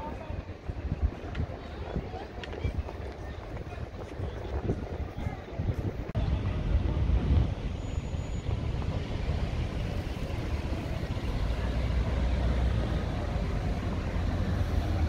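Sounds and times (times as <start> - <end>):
road traffic rumble: 5.6 - 15.0
cars passing close by: 8.0 - 15.0.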